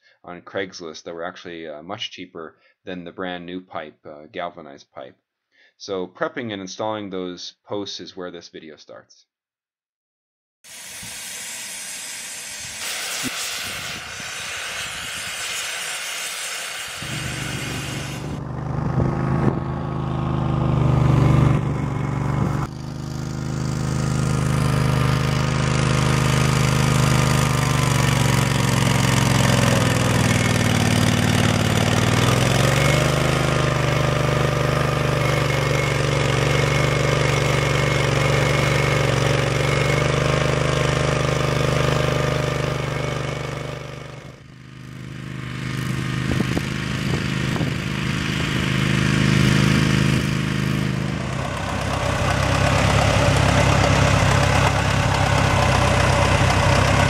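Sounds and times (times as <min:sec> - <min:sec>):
arc welding crackling hiss: 0:10.7 - 0:18.4
trencher engine running: 0:10.7 - 0:57.0.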